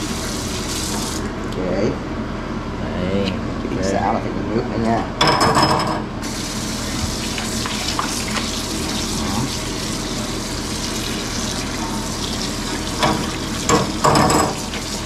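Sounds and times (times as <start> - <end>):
tap running into sink: 12.8 - 15.0.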